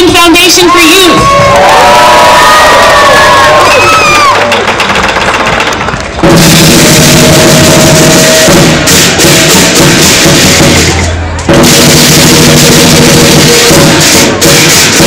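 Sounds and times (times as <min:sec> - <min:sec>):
crowd cheering and clapping: 0:01.1 - 0:06.2
big drum beating: 0:04.6 - 0:15.0.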